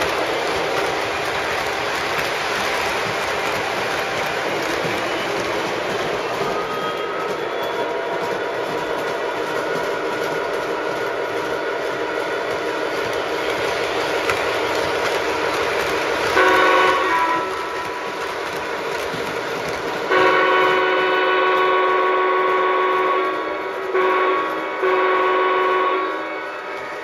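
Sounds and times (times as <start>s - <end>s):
wheels rolling on track: 0.0s - 25.0s
locomotive running sounds: 0.0s - 27.0s
model locomotive horn chord: 16.3s - 17.8s, 20.1s - 27.0s.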